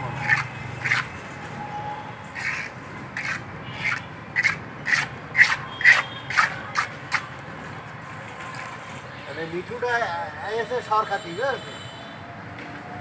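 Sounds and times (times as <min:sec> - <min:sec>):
hand tool scraping wet cement: 0:00.1 - 0:01.1, 0:02.4 - 0:07.2.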